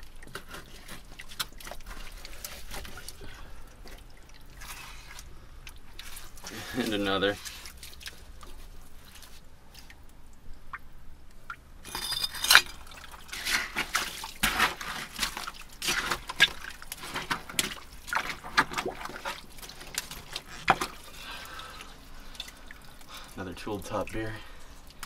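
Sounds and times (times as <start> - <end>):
wet muck squelching and splashing: 0.0 - 10.8, 12.7 - 25.0
glass bottles clinking: 11.8 - 12.9.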